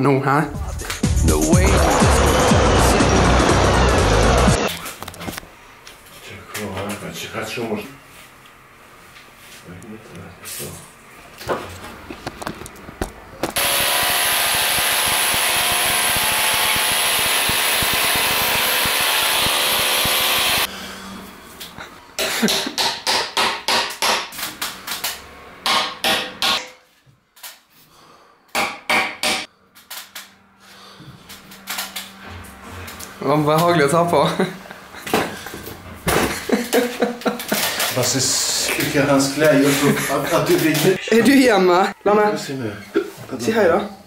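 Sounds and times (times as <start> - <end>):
electric power tool running: 13.6 - 20.7
hammer striking wood: 22.4 - 24.4, 25.6 - 26.8, 28.5 - 29.5.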